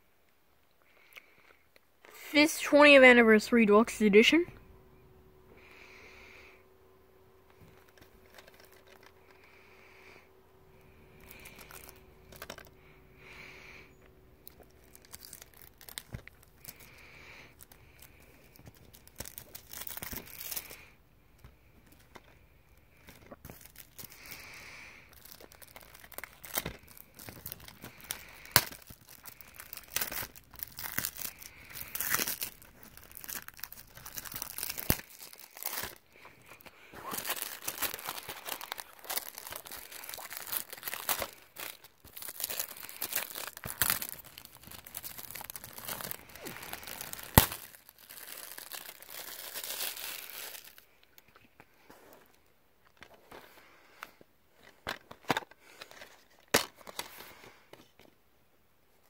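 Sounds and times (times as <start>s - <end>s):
plastic wrap tearing and crinkling: 7.6s - 9.5s, 10.8s - 12.8s, 14.4s - 51.2s.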